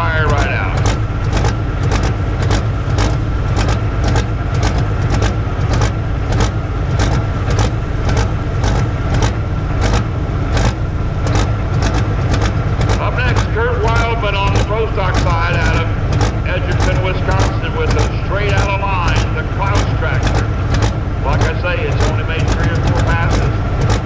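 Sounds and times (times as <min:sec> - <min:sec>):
diesel engine idling with whine: 0:00.0 - 0:24.0
sharp engine ticks: 0:00.0 - 0:24.0.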